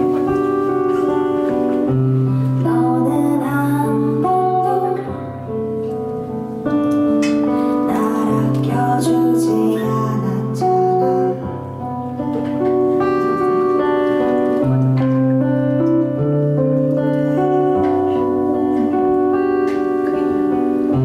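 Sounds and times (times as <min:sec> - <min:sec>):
acoustic guitar playing: 0:00.0 - 0:21.0.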